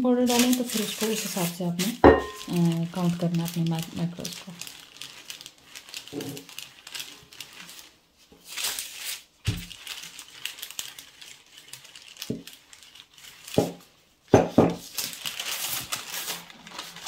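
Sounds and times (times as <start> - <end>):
paper crinkling and rustling: 0.0 - 17.0
rolling pin rolling over paper: 11.6 - 17.0.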